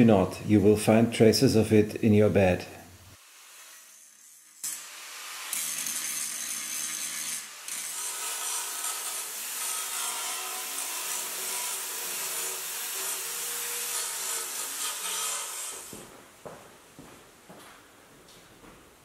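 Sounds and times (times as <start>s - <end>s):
belt file sanding steel: 3.4s - 15.9s
angle grinder grinding: 3.5s - 15.9s.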